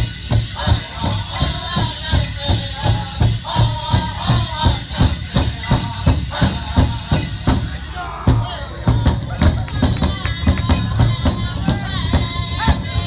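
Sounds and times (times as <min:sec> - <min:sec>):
big drum steady beat: 0:00.0 - 0:13.0
jingling bells and metal cones: 0:00.0 - 0:13.0
high-pitched singing: 0:00.6 - 0:13.0.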